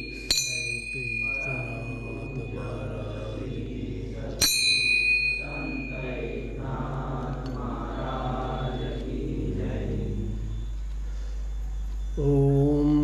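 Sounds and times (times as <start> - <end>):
small bell ringing: 0.0 - 3.2, 4.4 - 6.6
voices chanting: 0.0 - 13.0.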